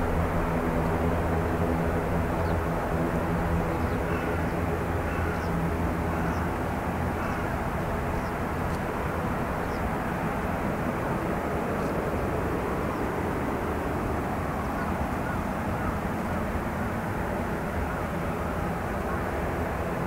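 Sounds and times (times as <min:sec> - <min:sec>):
low hum: 0:00.0 - 0:14.7
turboprop engines droning: 0:00.0 - 0:20.0.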